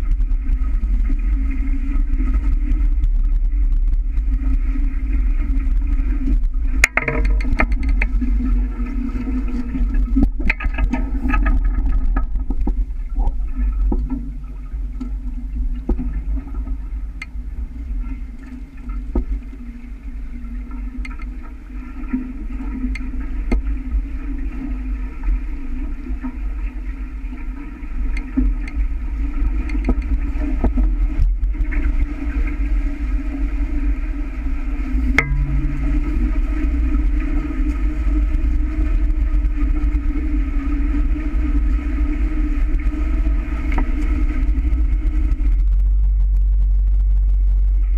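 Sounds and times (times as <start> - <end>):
water rushing past hulls: 0.0 - 46.5
wind rumbling on microphone: 0.0 - 47.9
sharp knocks and ticks: 6.8 - 8.2, 35.1 - 36.9.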